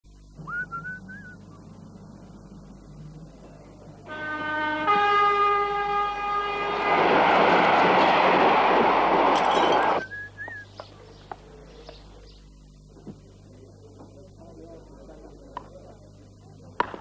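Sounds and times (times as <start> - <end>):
steam train whistle: 4.0 - 8.0
train rushing past hissing: 4.1 - 10.0.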